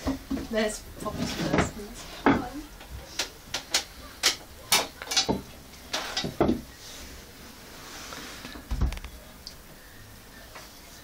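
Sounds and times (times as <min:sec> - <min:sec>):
knocks and clatters on wooden table: 0:01.2 - 0:02.5, 0:03.2 - 0:06.7
soft rustle: 0:06.8 - 0:09.2.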